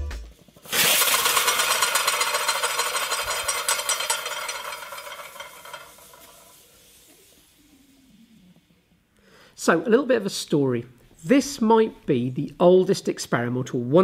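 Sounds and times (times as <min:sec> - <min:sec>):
steam hissing and spluttering: 0:00.6 - 0:07.7.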